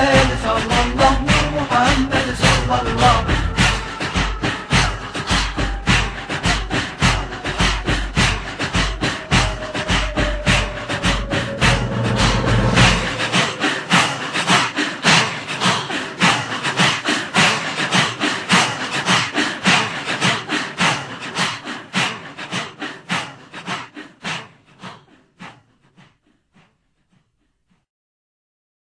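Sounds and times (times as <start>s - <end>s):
rhythmic percussion music: 0.0s - 21.1s.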